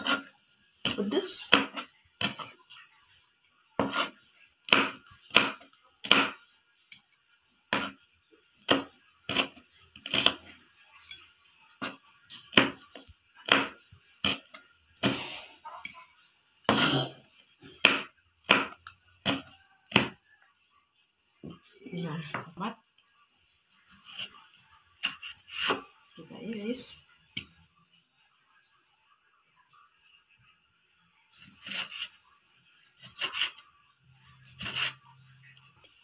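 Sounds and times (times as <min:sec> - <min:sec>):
knife chopping on plastic board: 0:00.9 - 0:02.5, 0:03.8 - 0:04.1, 0:04.7 - 0:06.4, 0:11.8 - 0:15.2, 0:17.8 - 0:20.2.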